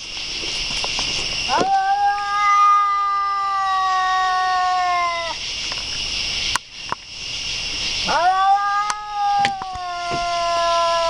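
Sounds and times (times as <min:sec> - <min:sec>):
cat yowling: 0:01.5 - 0:05.4, 0:08.0 - 0:11.0.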